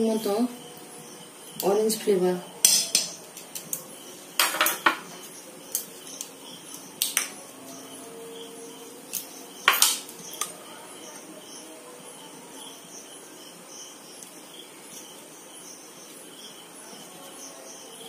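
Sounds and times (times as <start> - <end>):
utensils clinking on metal pan: 2.6 - 3.6, 4.4 - 5.1, 9.6 - 10.5.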